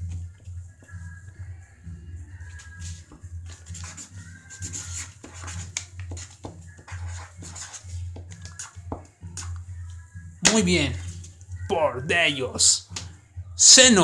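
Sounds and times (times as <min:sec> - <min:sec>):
marker scratching on paper: 0:02.8 - 0:09.5.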